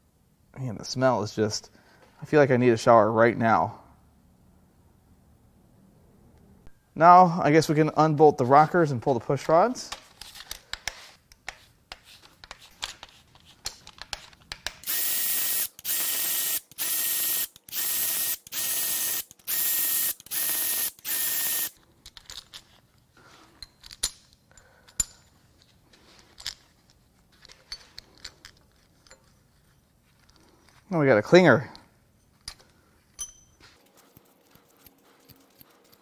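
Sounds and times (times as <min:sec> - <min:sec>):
power ratchet motor whine: 0:14.9 - 0:21.8.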